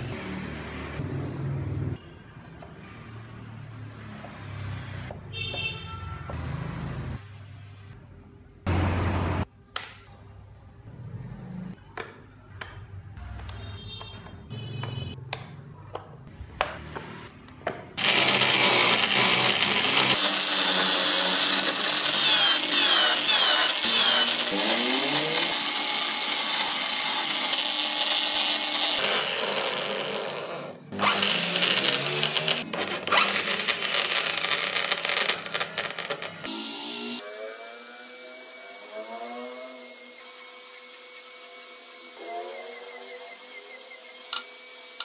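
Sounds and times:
electric drill whirring: 18.0s - 45.0s.

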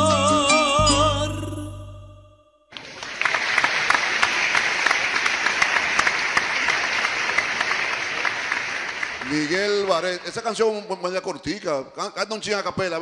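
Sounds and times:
held sung note with vibrato: 0.0s - 2.6s
applause: 2.7s - 10.5s.

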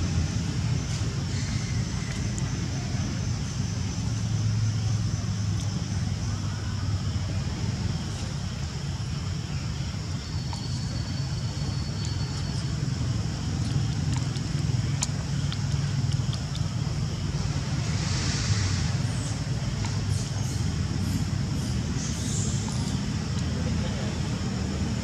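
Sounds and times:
low background rumble: 0.0s - 25.0s
faint hiss: 17.3s - 25.0s.

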